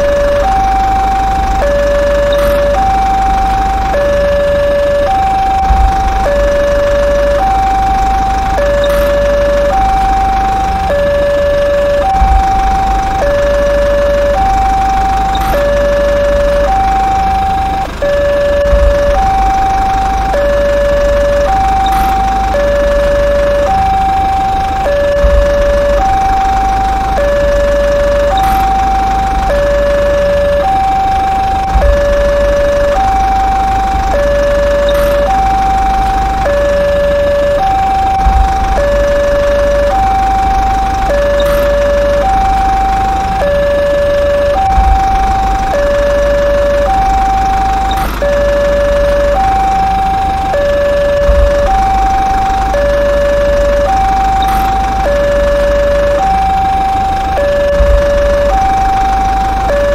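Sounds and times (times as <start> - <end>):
two-tone siren: 0.0 - 59.9.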